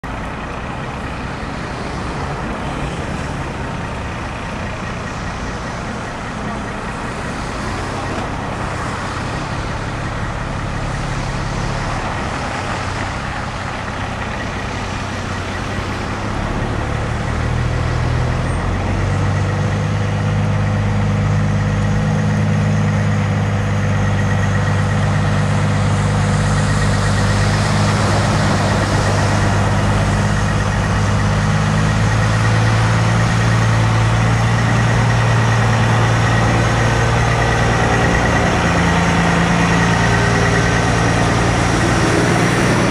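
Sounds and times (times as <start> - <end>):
truck diesel engine running: 0.0 - 42.9.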